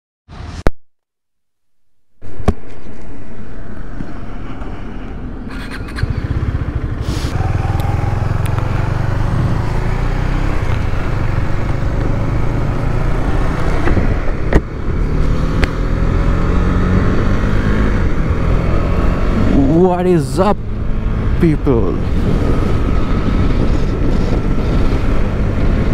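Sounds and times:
motorcycle engine accelerating: 5.5 - 25.9.

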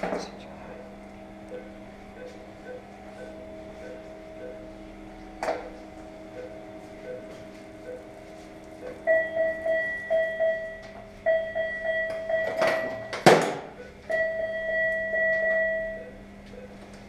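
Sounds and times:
electronic equipment beeping: 1.5 - 5.0, 5.6 - 8.2, 8.8 - 13.2, 13.8 - 16.8.

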